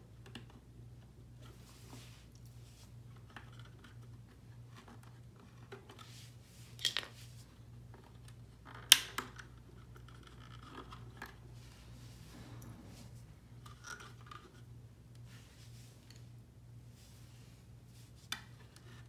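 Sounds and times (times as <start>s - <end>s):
faint handling rustle: 1.4s - 3.3s, 3.9s - 8.4s, 10.9s - 19.0s.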